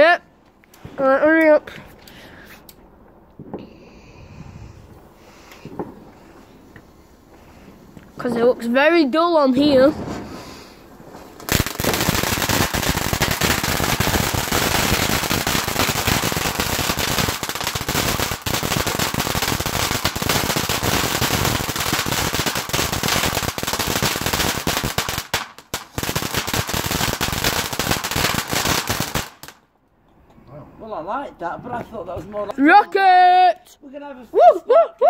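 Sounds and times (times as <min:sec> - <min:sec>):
firework fountain crackling: 0:04.9 - 0:29.7.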